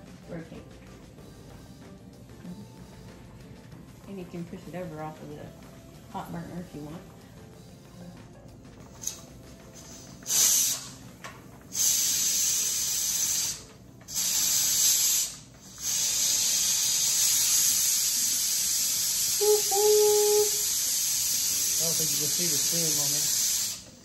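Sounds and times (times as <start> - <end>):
pressure canner hissing steam: 8.9 - 11.1, 11.7 - 24.0.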